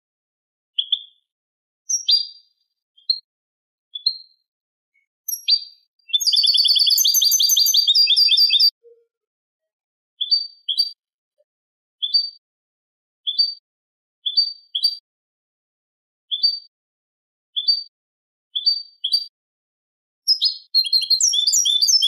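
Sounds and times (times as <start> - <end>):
goldfinch chirps and trills: 0.8 - 1.3, 1.9 - 3.3, 3.9 - 4.4, 5.0 - 8.8, 10.2 - 11.0, 12.0 - 12.4, 13.3 - 13.6, 14.3 - 15.0, 16.3 - 16.7, 17.6 - 17.9, 18.6 - 19.3, 20.3 - 22.0.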